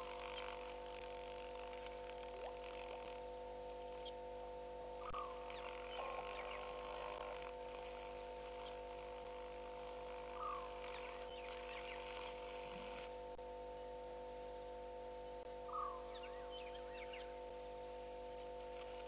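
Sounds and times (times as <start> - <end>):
steady hum of fixed tones: 0.0 - 19.0
small animal short calls: 10.2 - 13.0.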